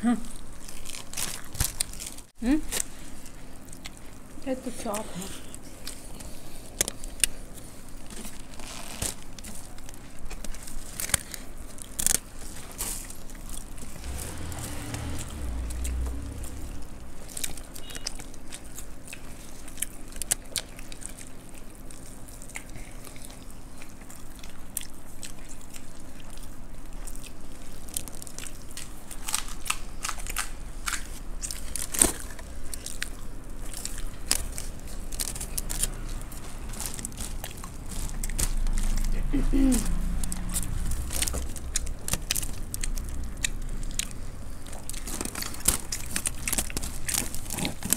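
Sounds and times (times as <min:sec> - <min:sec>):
crunching and chewing snacks: 0:00.0 - 0:47.9
crackling of dry puffed rice: 0:00.1 - 0:47.9
low rumble: 0:13.8 - 0:17.8.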